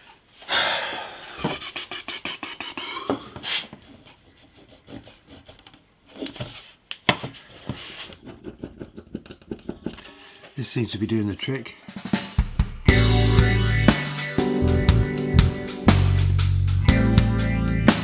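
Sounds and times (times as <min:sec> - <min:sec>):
chisel scraping wood: 0:03.3 - 0:06.5, 0:07.4 - 0:10.4.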